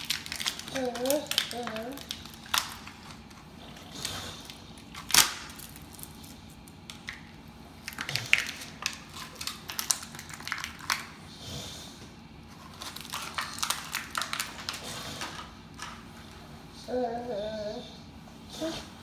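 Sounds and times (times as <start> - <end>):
plastic and cardboard crinkling: 0.0 - 11.2, 12.5 - 16.1.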